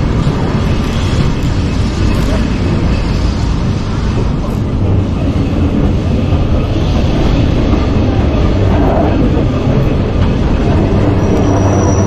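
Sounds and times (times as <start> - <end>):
electric tram rumbling on rails: 0.0 - 12.0
high wheel squeal: 10.6 - 12.0.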